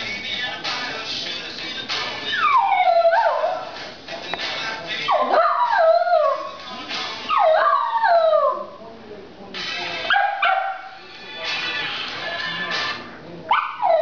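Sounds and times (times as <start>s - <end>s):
dog howling: 2.3s - 3.7s, 5.1s - 6.6s, 7.3s - 8.8s.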